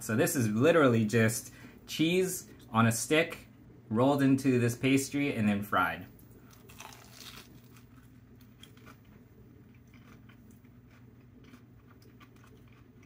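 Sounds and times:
crunching bite and chewing: 6.5s - 13.0s.

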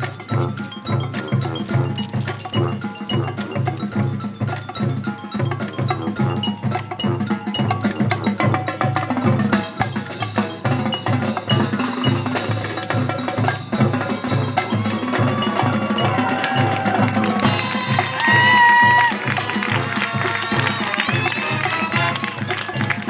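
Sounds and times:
wood-block clicks: 0.0s - 17.6s
marching band playing: 0.0s - 23.0s.

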